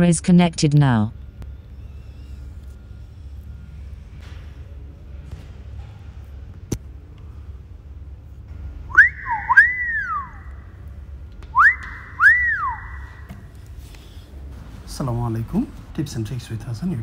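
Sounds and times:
recorded wolf whistle: 0:08.9 - 0:10.7, 0:11.5 - 0:13.3.

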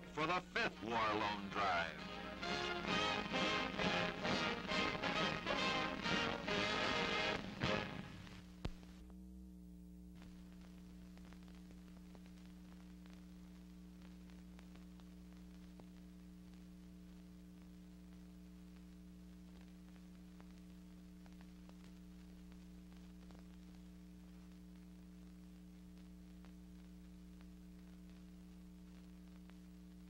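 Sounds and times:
faint electrical hum: 0:00.0 - 0:30.0
faint crackles: 0:07.4 - 0:09.2, 0:10.1 - 0:30.0.

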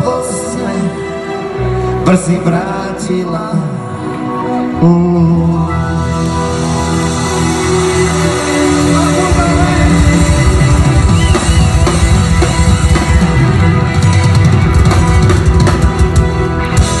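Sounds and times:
live rock band playing: 0:00.0 - 0:17.0
drum kit: 0:06.1 - 0:17.0.

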